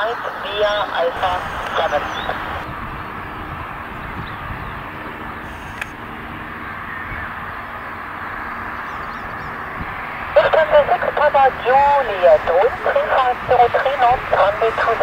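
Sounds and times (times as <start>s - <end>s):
jet engine noise: 0.0s - 15.0s
faint bird calls: 0.7s - 2.6s, 6.6s - 9.8s.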